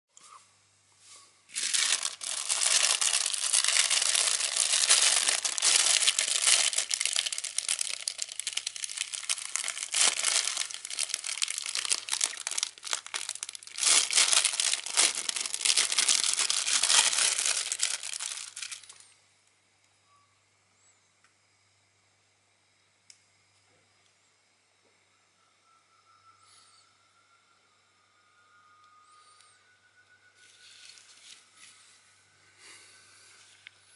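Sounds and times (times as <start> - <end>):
plastic bag crinkling: 1.5 - 19.0.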